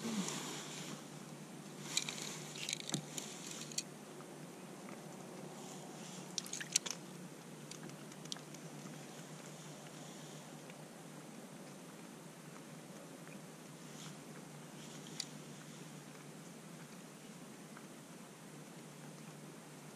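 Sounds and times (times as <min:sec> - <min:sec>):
faint background hiss: 0:00.0 - 0:19.9
fishing rod clicks and crinkles: 0:01.8 - 0:03.9, 0:06.2 - 0:08.7.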